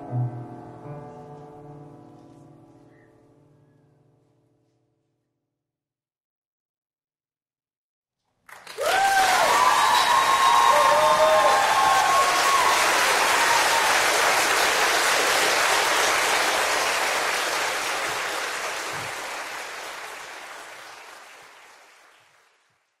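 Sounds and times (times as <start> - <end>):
audience applauding: 8.4 - 23.0.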